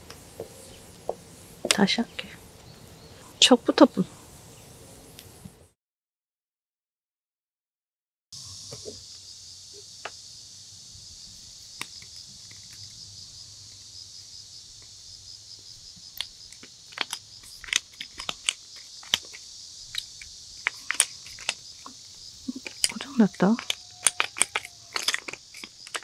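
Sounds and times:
insects chirping: 0.0s - 5.8s, 8.4s - 26.0s
pepper mill clicking: 16.0s - 26.0s.

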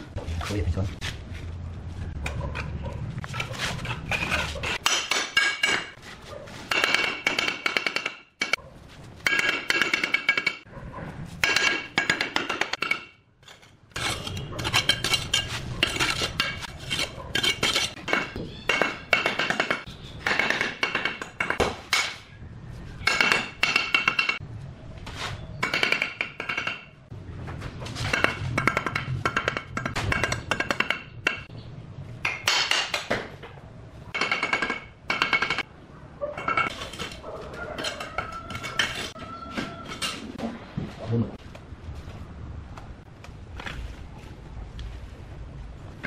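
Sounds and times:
trowel scraping mortar: 3.2s - 4.9s, 13.4s - 18.4s
trowel tapping bricks: 6.7s - 8.6s, 11.4s - 22.2s, 28.0s - 31.5s.

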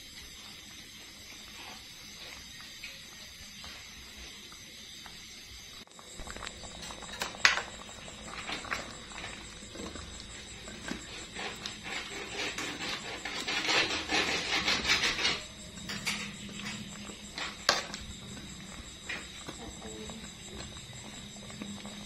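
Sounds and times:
ladle stirring soup in metal pot: 6.2s - 22.0s.

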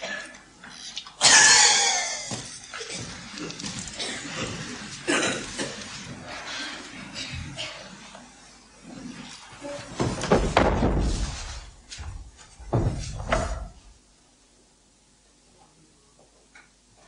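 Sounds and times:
feet thumping on wooden stage: 9.8s - 13.9s.

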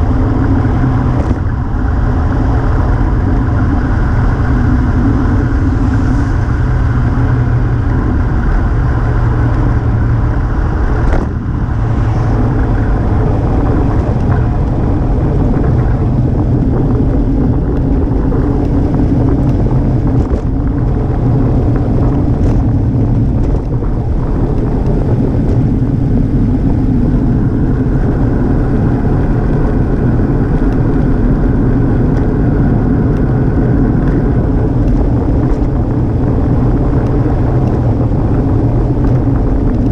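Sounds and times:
wind rumble on microphone: 0.0s - 39.9s.

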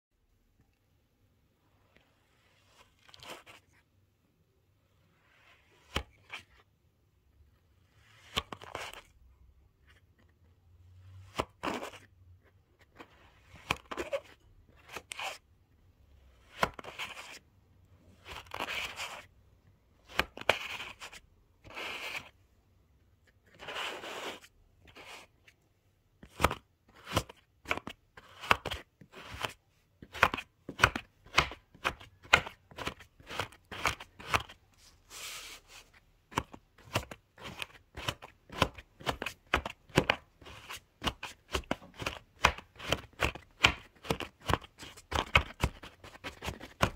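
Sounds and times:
plastic blade cutting kinetic sand: 20.1s - 22.3s, 23.4s - 25.3s, 26.3s - 34.6s.

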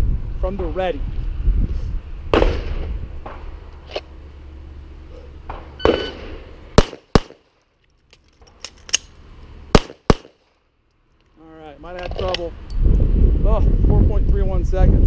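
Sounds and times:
pistol shots: 2.3s - 3.4s, 5.4s - 7.6s, 9.7s - 10.6s
shot timer beep: 5.8s - 6.2s
magazine reload clicks: 7.1s - 9.2s.

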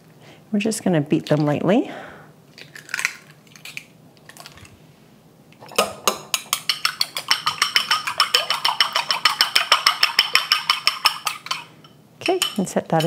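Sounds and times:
chopsticks beating eggs in bowl: 5.7s - 13.0s.

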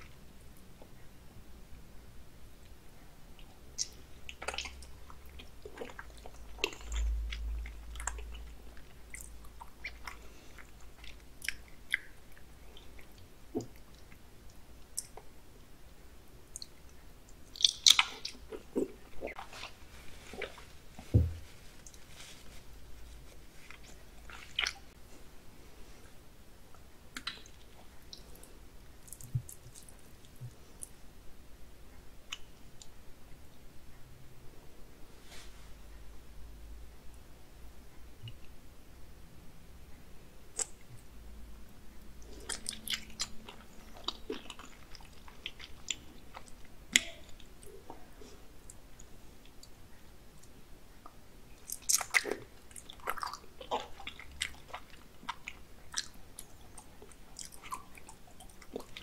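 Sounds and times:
wet chewing mouth clicks: 3.4s - 15.3s, 17.4s - 19.7s, 23.7s - 25.0s, 27.1s - 30.9s, 42.2s - 48.1s, 51.1s - 59.0s.

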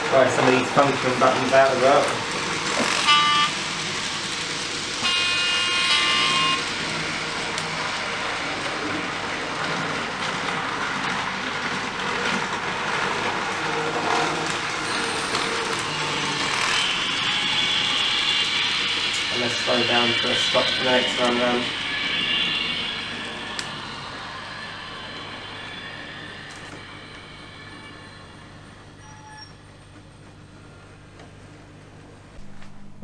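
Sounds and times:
model train running sound: 0.0s - 31.5s
model train horn blasts: 2.9s - 3.6s, 5.0s - 6.7s.

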